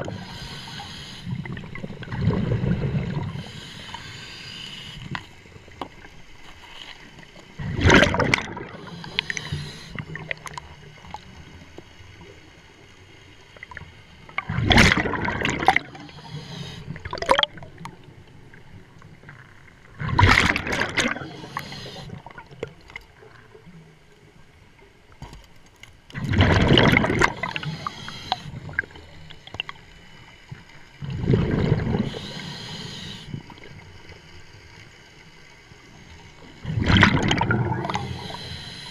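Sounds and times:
regulator hiss: 0.1 - 1.4, 3.4 - 5.4, 8.8 - 10.0, 21.3 - 22.2, 27.5 - 28.5, 32.1 - 33.4, 38.0 - 38.9
diver exhaling bubbles: 7.6 - 10.2, 14.4 - 17.6, 26.2 - 28.9, 31.0 - 33.4, 36.6 - 38.9.

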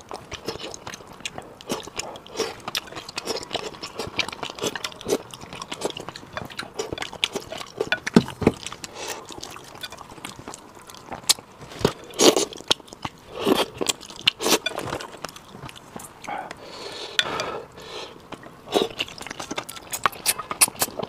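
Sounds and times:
wet chewing: 0.0 - 17.5, 18.1 - 21.0.

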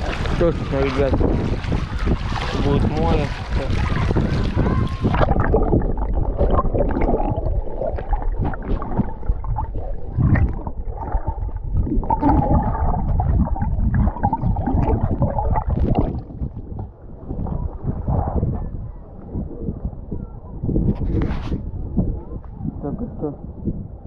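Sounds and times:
low underwater rumbling: 0.0 - 24.0
underwater gurgling and sloshing: 0.0 - 24.0.

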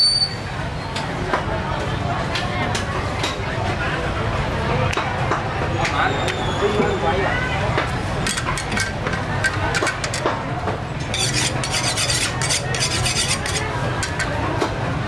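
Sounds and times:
utensils scraping against a pot: 8.1 - 10.4, 11.0 - 14.4.

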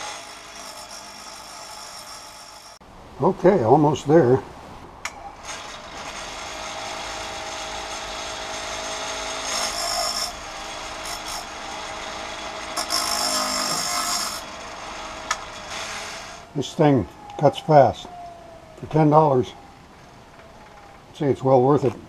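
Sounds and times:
grinding wheel gritty scraping: 5.4 - 16.7.

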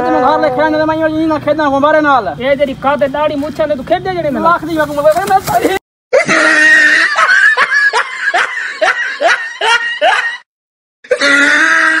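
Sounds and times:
person laughing: 6.1 - 10.4.

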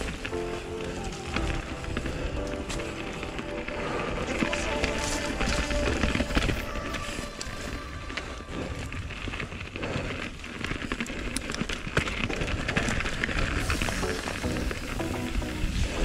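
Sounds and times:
bike rattling and knocking: 0.0 - 7.2, 8.1 - 16.0
background music: 0.0 - 8.2, 13.6 - 16.0
tyres crackling over dirt and rocks: 0.0 - 16.0.

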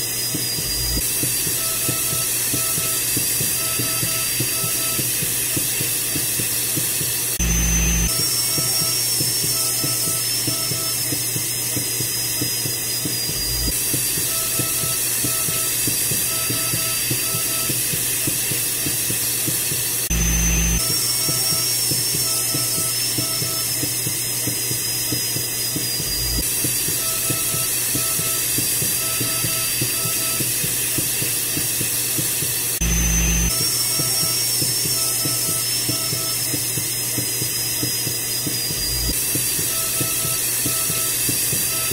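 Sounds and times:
high wavering whine: 0.0 - 19.1, 20.0 - 31.2.

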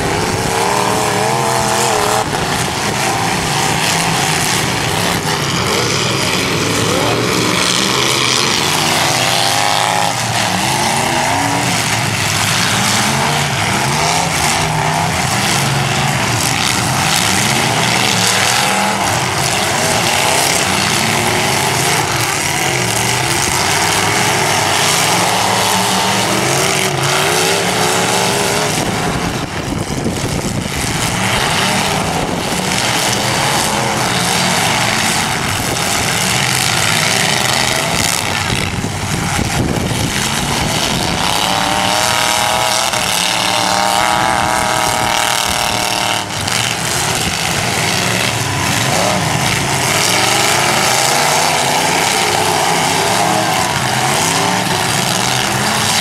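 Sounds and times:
car engines revving hard: 0.0 - 56.0.

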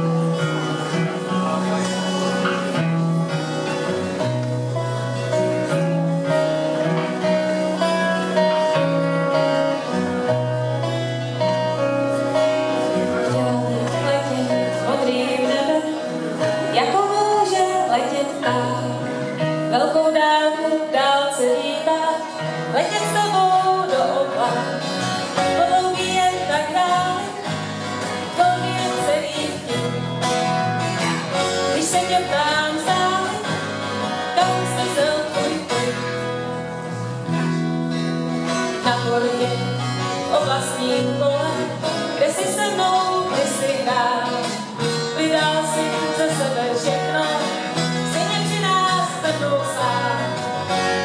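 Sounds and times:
electric bass guitar: 0.0 - 20.6, 21.4 - 51.0
acoustic guitars: 0.0 - 51.0
woman singing into a microphone: 10.8 - 36.8, 38.6 - 51.0.

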